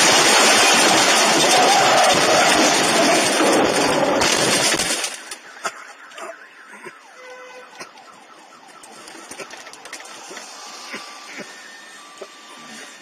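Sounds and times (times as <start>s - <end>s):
faint wavering siren: 5.2s - 13.0s.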